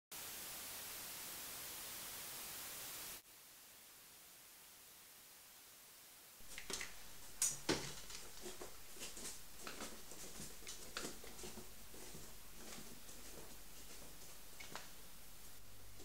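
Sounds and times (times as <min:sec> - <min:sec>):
low hum: 0:06.4 - 0:16.0
small clicks and taps: 0:14.6 - 0:15.0.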